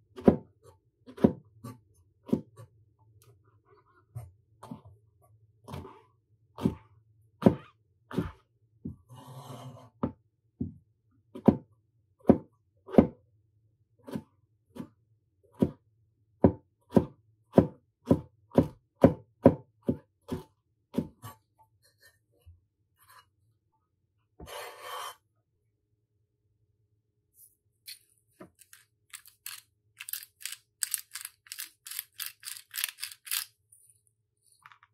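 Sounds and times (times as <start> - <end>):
knife chopping on cutting board: 0.1 - 2.6, 7.4 - 8.4, 11.3 - 13.2, 15.5 - 15.8, 16.4 - 21.4.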